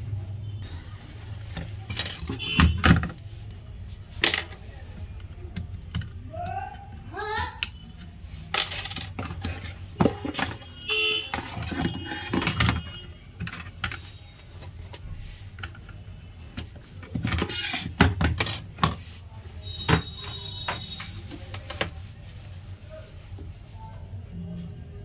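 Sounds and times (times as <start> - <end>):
horn honk: 2.3 - 3.0, 10.3 - 13.2
small parts clicking and rattling: 7.4 - 21.9.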